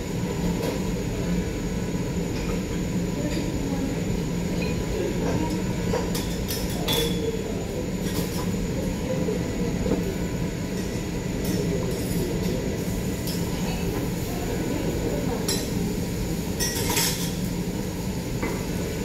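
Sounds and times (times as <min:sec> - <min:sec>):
metal spatulas clinking on griddle: 0:16.6 - 0:17.4.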